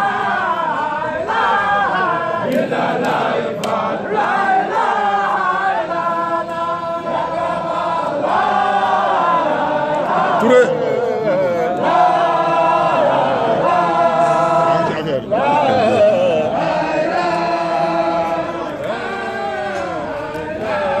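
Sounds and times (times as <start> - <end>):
men chanting a devotional song: 0.0 - 21.0.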